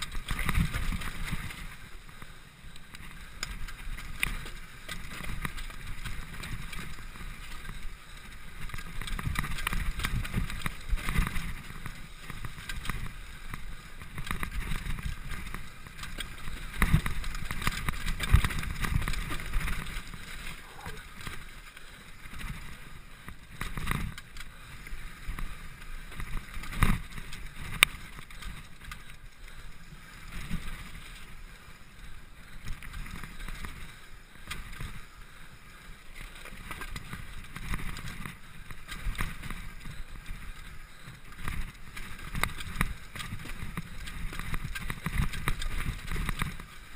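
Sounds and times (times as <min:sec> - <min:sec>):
bike knocks and rattles: 0:08.6 - 0:21.5, 0:41.4 - 0:46.9.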